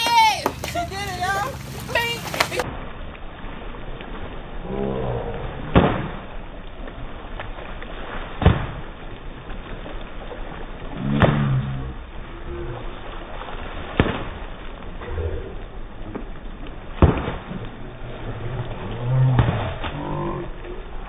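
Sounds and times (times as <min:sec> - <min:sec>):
person shouting: 0:00.0 - 0:01.6
pool noodles slapping water: 0:00.0 - 0:21.0
water splashing: 0:00.0 - 0:21.0.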